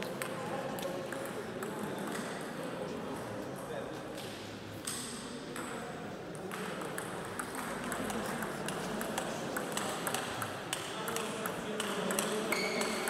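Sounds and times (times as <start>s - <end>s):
murmur of voices: 0.0s - 13.0s
table tennis balls clicking: 6.4s - 13.0s.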